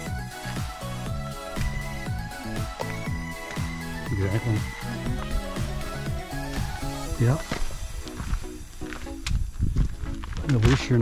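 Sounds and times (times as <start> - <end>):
electronic music: 0.0 - 9.3
deep kick drums: 1.1 - 6.9.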